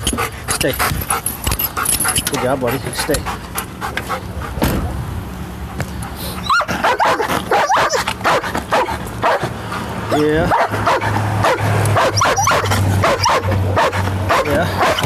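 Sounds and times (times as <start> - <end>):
dog barking and whining: 6.2 - 9.5, 10.1 - 15.0.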